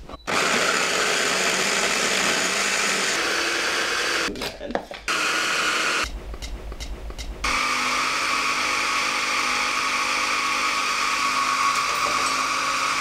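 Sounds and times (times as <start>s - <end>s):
stick blender motor: 0.3s - 4.3s, 5.1s - 6.1s, 7.5s - 13.0s.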